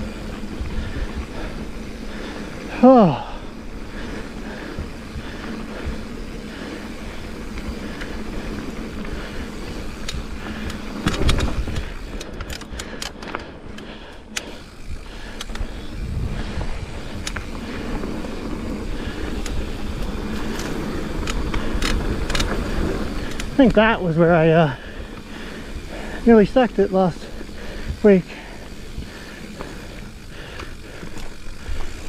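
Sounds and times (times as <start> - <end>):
bike tyres rumbling on dirt: 0.0 - 32.0
sharp clicks: 10.0 - 15.8, 19.3 - 19.6
wind on microphone: 15.7 - 17.7.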